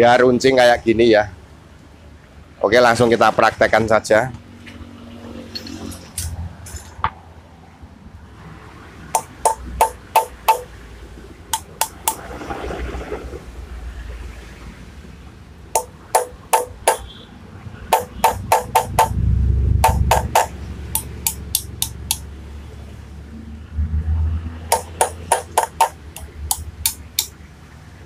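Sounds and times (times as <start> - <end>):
hammer striking metal punch: 9.2 - 10.8, 11.6 - 12.2, 15.8 - 17.2, 17.9 - 19.2, 19.8 - 22.3, 24.7 - 27.4.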